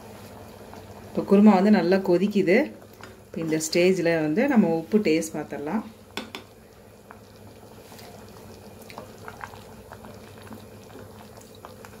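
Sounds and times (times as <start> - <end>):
gravy bubbling in a pot: 0.0 - 12.0
wooden spatula stirring: 7.8 - 12.0.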